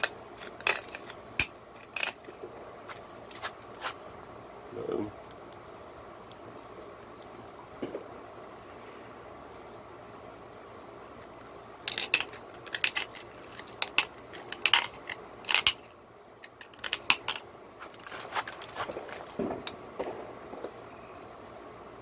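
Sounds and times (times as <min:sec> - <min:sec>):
stone flakes clicking off: 0:00.0 - 0:04.0, 0:11.8 - 0:19.8
tool scratching stone edge: 0:16.7 - 0:19.3.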